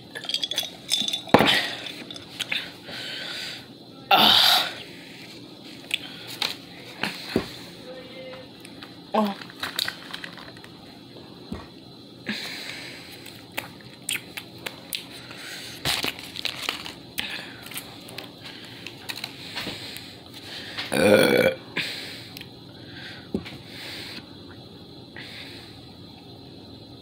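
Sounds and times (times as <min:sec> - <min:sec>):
food handling clicks and crinkles: 0:08.6 - 0:10.8, 0:12.7 - 0:20.9
loud burp: 0:20.9 - 0:21.6.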